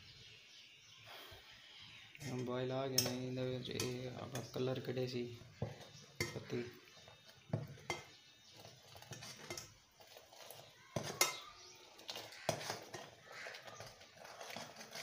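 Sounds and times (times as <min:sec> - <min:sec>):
metal ladle clinking against pot: 0:02.2 - 0:04.7, 0:05.6 - 0:15.0.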